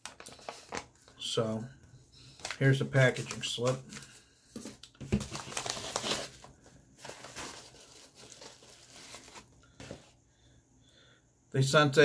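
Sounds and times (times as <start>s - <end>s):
paper crinkling and rustling: 0.0s - 1.3s, 2.3s - 10.1s.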